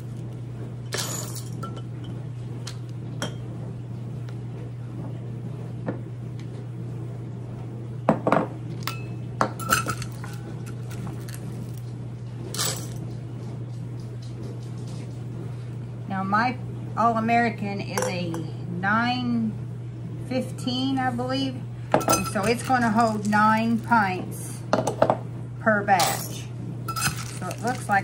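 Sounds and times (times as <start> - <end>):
steady low hum: 0.0 - 28.0
beans rattling against glass: 22.0 - 23.8, 26.9 - 28.0.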